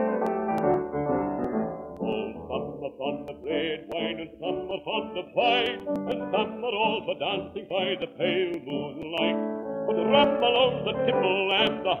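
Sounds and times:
instrumental accompaniment: 0.0 - 12.0
record surface clicks: 0.1 - 2.6, 3.2 - 6.6, 8.4 - 9.4
man singing: 2.0 - 12.0.

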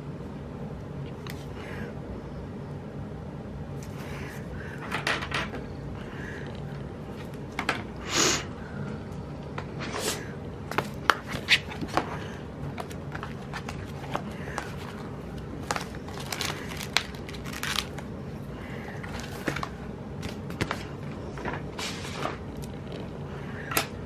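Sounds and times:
paper crinkling: 10.7 - 18.1, 18.9 - 23.1
stickers peeling: 12.7 - 18.1.

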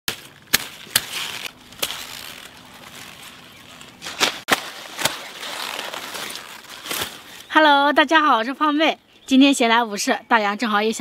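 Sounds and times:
knife snapping through stems: 0.1 - 7.2
leaves rustling: 0.1 - 7.7.

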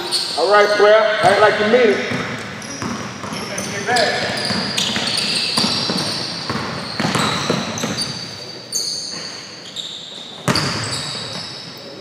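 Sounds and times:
sneakers squeaking: 0.0 - 12.0
basketball bouncing on hardwood: 2.1 - 8.1.

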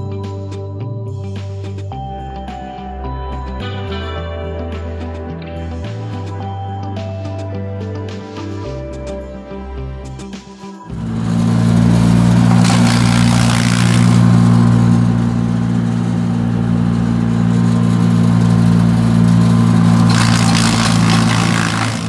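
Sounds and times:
chipper shredding corn stalks: 10.9 - 22.0
wood chipper engine running: 10.9 - 22.0.

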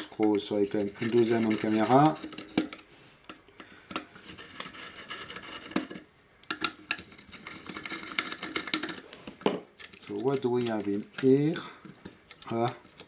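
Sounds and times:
screwdriver clicking and scraping: 0.7 - 9.1.

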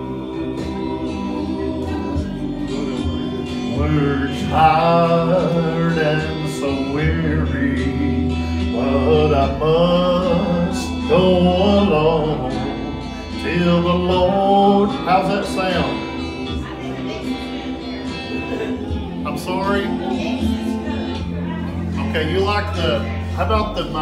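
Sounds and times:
country backing music: 0.0 - 24.0
man singing into microphone: 0.0 - 24.0.

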